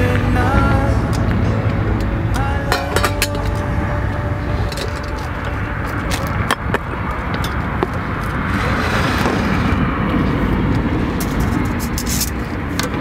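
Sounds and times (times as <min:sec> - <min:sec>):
low rumble: 0:00.0 - 0:13.0.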